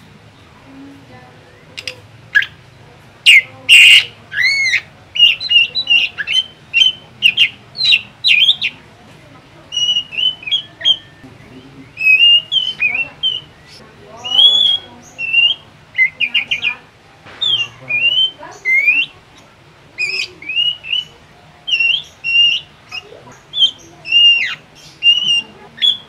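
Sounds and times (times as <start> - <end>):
harsh bird calls: 0.0 - 26.0
bird singing chirps and whistles: 3.3 - 8.8, 9.7 - 16.8, 17.4 - 19.1, 20.0 - 26.0.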